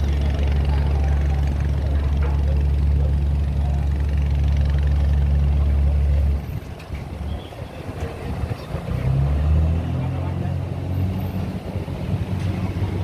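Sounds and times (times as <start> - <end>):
heavy engine idling: 0.0 - 8.8.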